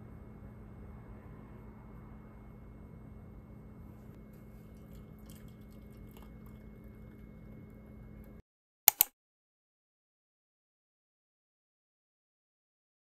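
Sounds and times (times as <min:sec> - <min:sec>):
faint room hum: 0:00.0 - 0:08.4
sharp loud clicks: 0:08.9 - 0:09.1.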